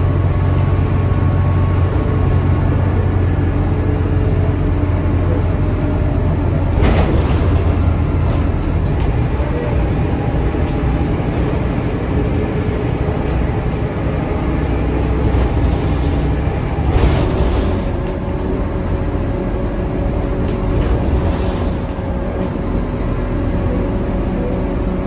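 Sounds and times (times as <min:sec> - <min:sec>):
bus diesel engine running: 0:00.0 - 0:25.0
road rumble: 0:00.0 - 0:25.0
rattle: 0:15.4 - 0:18.5, 0:20.8 - 0:22.5.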